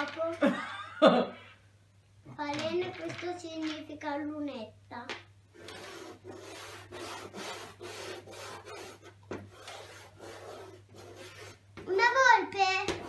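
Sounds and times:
chalk scraping on blackboard: 5.6 - 11.6.

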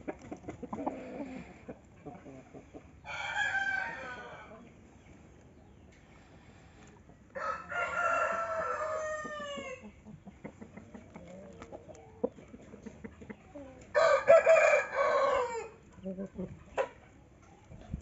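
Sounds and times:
rooster crowing: 3.0 - 4.5, 7.4 - 9.8, 14.0 - 15.8.

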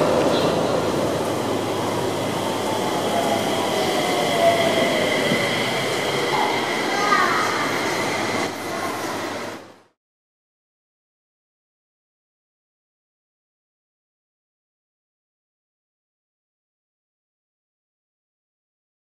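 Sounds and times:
train rolling noise: 0.0 - 10.0.

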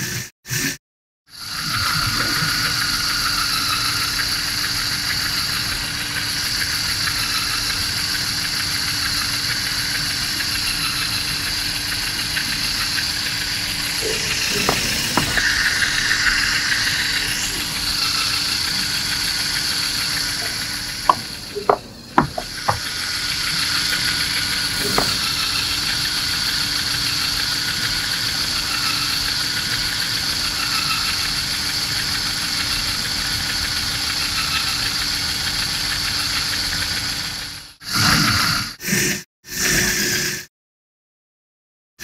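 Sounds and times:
toy car electric motor whining: 1.3 - 40.5
tyres on cardboard ramp: 14.2 - 15.4, 21.1 - 22.9, 24.7 - 25.4
sharp knocks on wooden blocks: 14.6 - 15.4, 20.5 - 22.9, 24.8 - 25.3.

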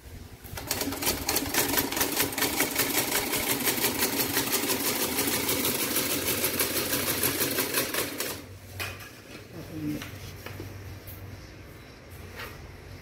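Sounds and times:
treadle sewing machine clattering: 0.6 - 8.5.

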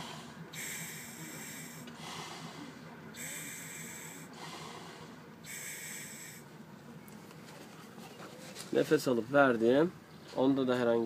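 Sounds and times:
breathing: 0.0 - 6.4
rebreather gas hissing: 0.0 - 6.5.

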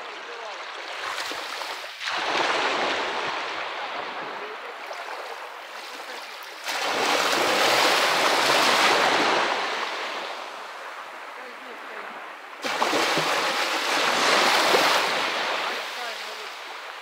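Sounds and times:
waves breaking on pebble shore: 0.0 - 17.0.

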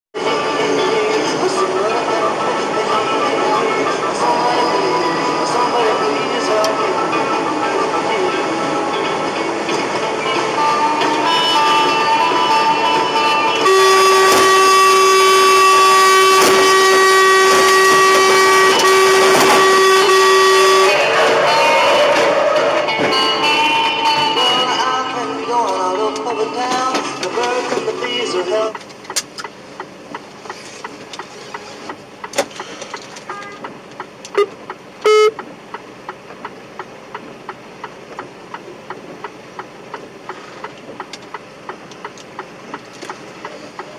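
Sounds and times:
road noise: 0.1 - 43.9
vehicle horn blast: 10.6 - 22.2, 33.2 - 33.7, 34.4 - 35.4.

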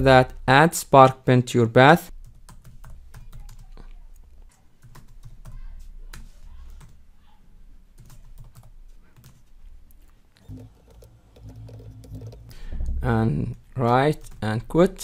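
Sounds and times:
computer keyboard typing: 2.2 - 3.9, 4.8 - 7.0, 8.0 - 9.4, 10.4 - 12.7.

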